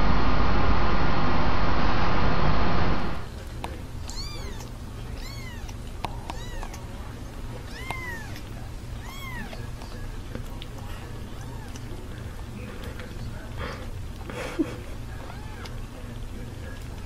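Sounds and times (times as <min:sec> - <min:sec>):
loud rushing noise: 0:00.0 - 0:03.3
kitten mewing: 0:04.0 - 0:06.8, 0:07.6 - 0:10.2, 0:11.4 - 0:11.9, 0:15.2 - 0:15.7.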